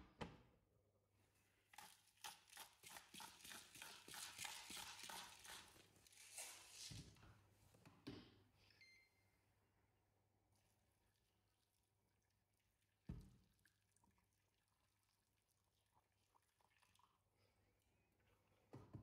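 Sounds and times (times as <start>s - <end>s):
faint high beep: 8.7s - 9.4s.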